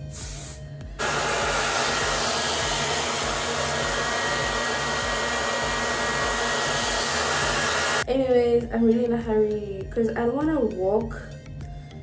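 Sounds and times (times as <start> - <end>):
hair dryer blowing: 1.0 - 8.0.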